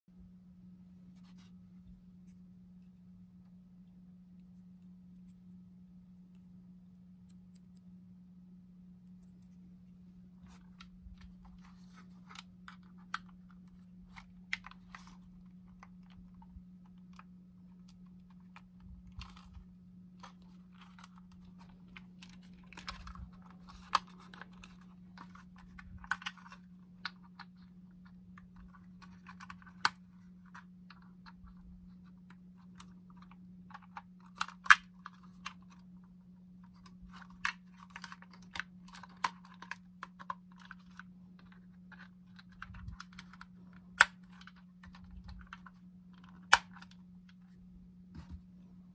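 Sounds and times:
steady low hum: 0.1 - 48.9.

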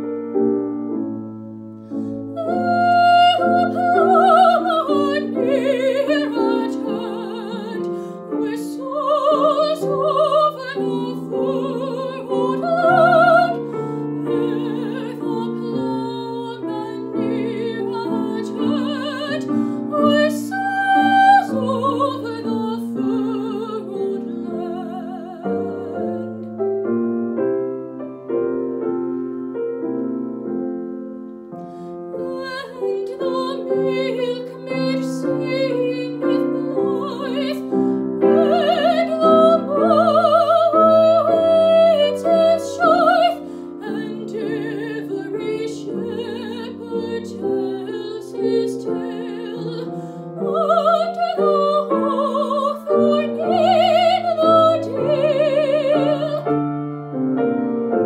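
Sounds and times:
grand piano: 0.0 - 58.0
woman singing with vibrato: 2.3 - 26.4, 32.1 - 56.6.

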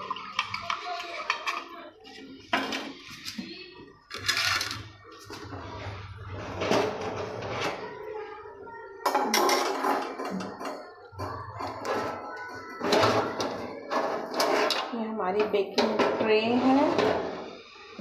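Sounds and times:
metal tray and rack clattering: 6.3 - 7.8, 12.8 - 17.4.

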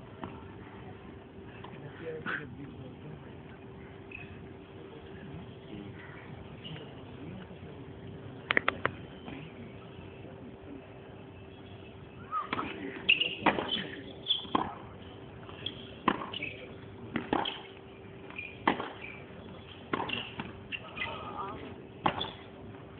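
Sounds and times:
steady hum: 0.0 - 22.9
tennis ball being struck: 12.5 - 13.8, 14.4 - 14.8, 16.0 - 16.5, 17.1 - 17.7, 18.4 - 19.2, 19.9 - 20.5, 22.0 - 22.4.

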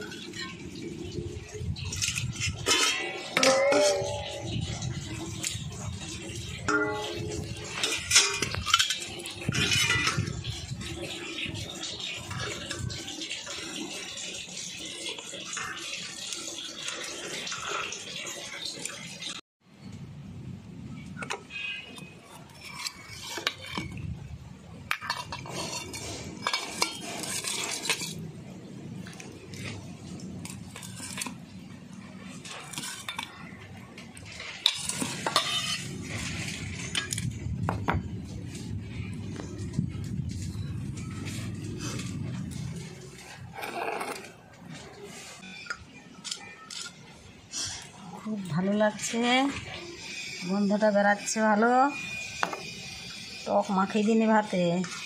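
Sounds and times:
metal bowls and ladle clinking: 0.0 - 19.4, 21.1 - 55.0
rice scraping and rustling: 25.1 - 28.3, 34.2 - 37.2, 40.5 - 46.2.

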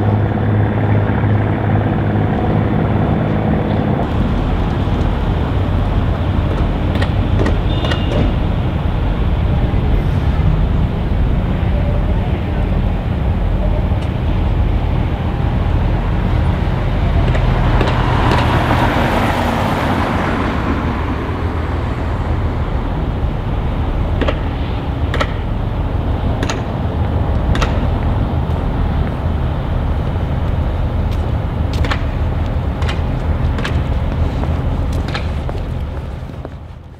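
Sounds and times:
low engine rumble: 0.0 - 36.9
rushing noise: 0.0 - 36.9.

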